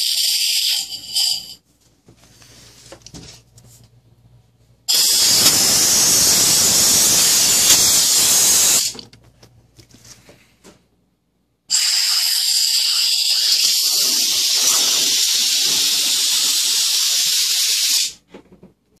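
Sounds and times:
compressed air hissing from nozzle: 4.9s - 8.9s, 11.7s - 18.2s.

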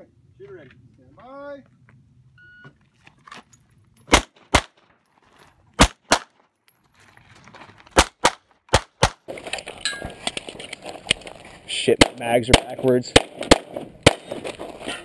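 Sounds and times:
pistol shots: 4.1s - 4.8s, 5.8s - 6.4s, 8.0s - 9.3s, 11.9s - 14.6s.

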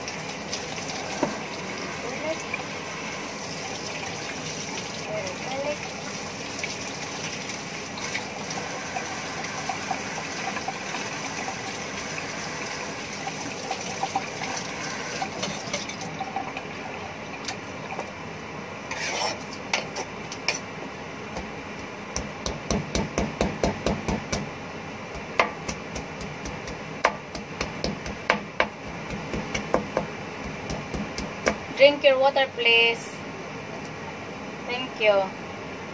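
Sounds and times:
tap water running into sink: 0.0s - 18.1s
knife chopping on wooden board: 22.2s - 24.5s, 25.2s - 31.6s.

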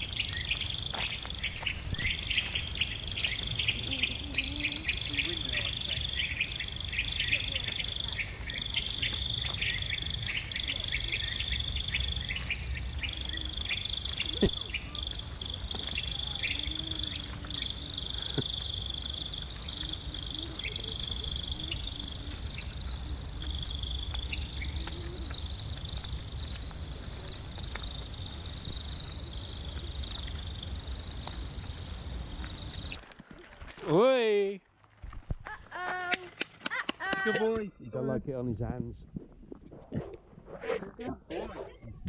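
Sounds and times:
insects chirring: 0.0s - 33.2s.

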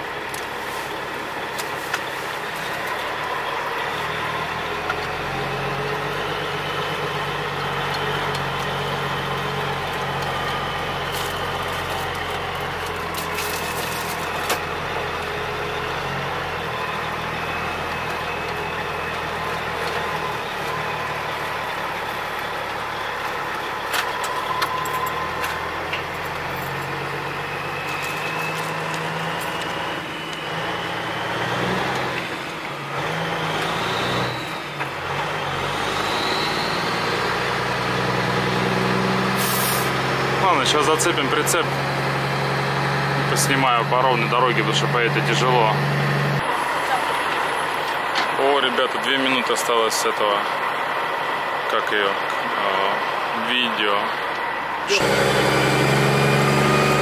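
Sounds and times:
diesel truck engine revving: 0.0s - 57.0s
faint rising whistle: 26.8s - 29.0s, 29.6s - 31.4s, 36.0s - 37.0s.

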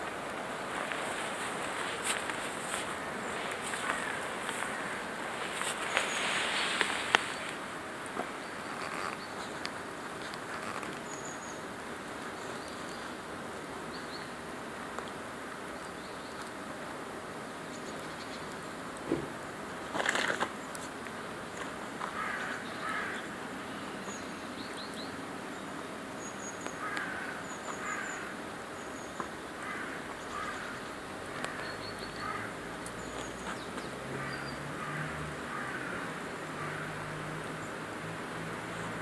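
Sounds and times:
small birds chirping: 0.0s - 11.7s, 23.8s - 35.0s
crows cawing: 0.8s - 6.2s, 22.1s - 23.3s, 26.8s - 28.4s, 29.6s - 31.6s, 32.2s - 32.6s, 34.1s - 37.2s.

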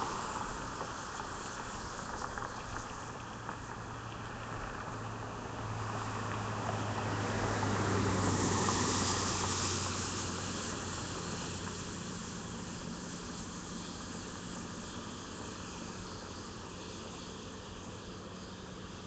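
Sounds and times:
vehicle passing on wet road: 0.0s - 19.0s.

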